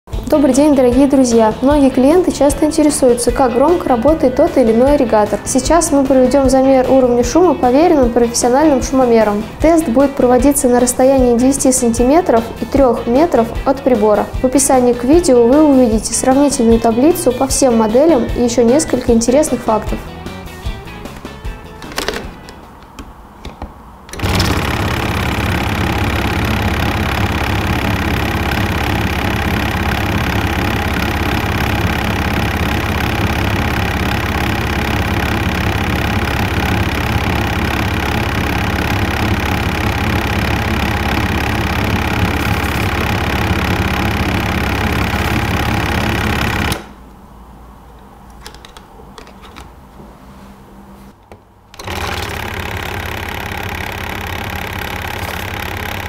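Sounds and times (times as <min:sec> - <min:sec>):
water flosser pump buzzing: 0:24.1 - 0:46.9, 0:51.7 - 0:56.0.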